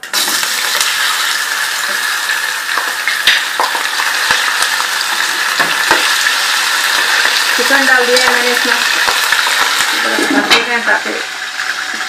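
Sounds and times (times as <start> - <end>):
chicken sizzling in hot oil: 0.0 - 12.0.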